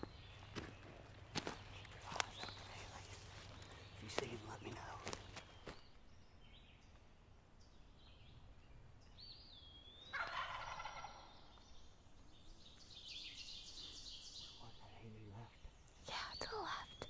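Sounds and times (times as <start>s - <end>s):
songbirds chirping and whistling: 0.0s - 17.0s
turkey gobbling: 10.1s - 11.5s.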